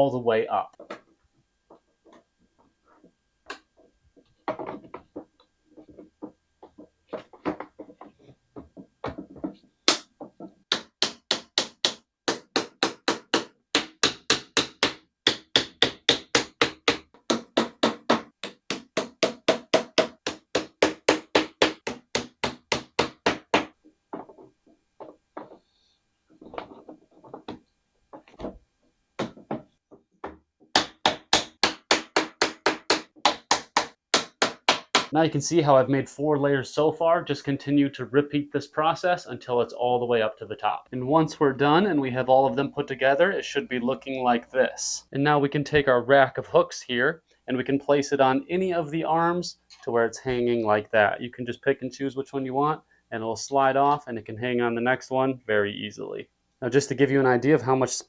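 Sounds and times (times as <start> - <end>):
wooden mallet knocking on plastic: 3.5 - 25.6, 26.4 - 28.6, 29.2 - 35.1.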